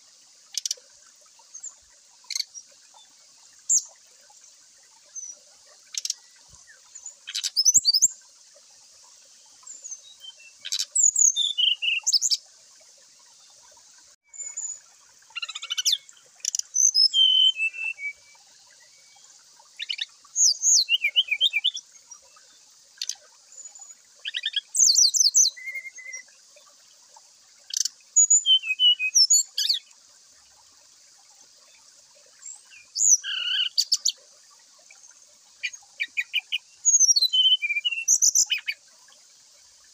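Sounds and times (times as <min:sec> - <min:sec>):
bird singing whistles and trills: 0:06.9 - 0:08.1, 0:09.7 - 0:12.4, 0:15.4 - 0:18.4, 0:19.8 - 0:21.8, 0:23.0 - 0:26.3, 0:27.7 - 0:29.8, 0:32.4 - 0:34.1, 0:35.6 - 0:38.8.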